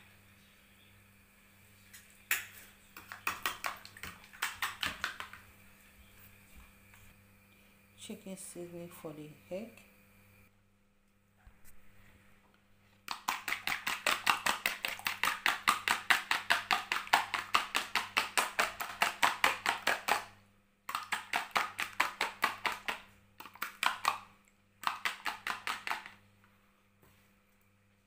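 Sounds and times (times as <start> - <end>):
egg beaten in plastic bowl: 2.3 - 5.5, 13.0 - 26.2.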